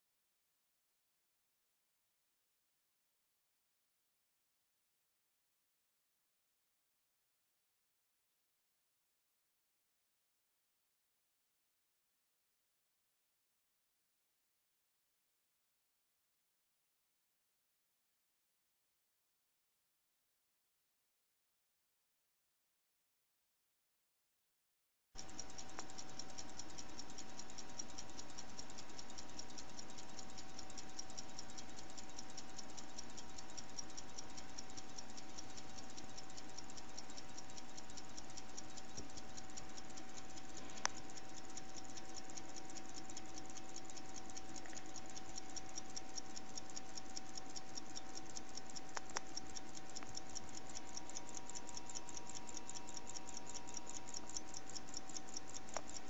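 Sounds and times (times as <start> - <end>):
faint steady hum: 25.2 - 56.0
pocket watches ticking: 25.2 - 56.0
sharp click: 48.5 - 50.8.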